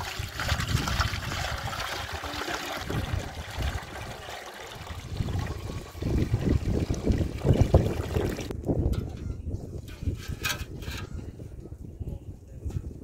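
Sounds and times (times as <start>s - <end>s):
water trickling into metal pot: 0.0s - 9.2s.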